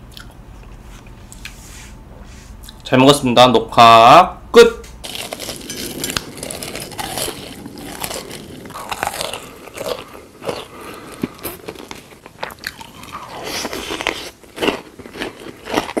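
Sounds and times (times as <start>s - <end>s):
crunchy chewing: 5.0s - 16.0s.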